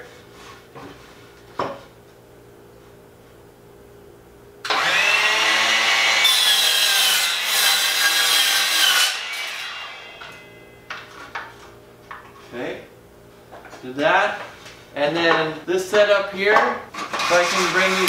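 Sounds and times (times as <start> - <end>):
miter saw motor whine: 4.7 - 7.2, 8.8 - 10.5
saw blade cutting wood: 4.7 - 10.5, 17.1 - 18.0.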